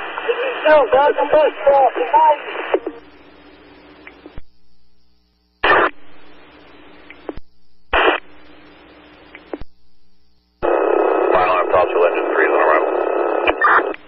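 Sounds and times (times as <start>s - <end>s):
radio static and hiss: 0.0s - 14.0s
radio keying clicks: 7.0s - 8.4s, 9.2s - 9.8s.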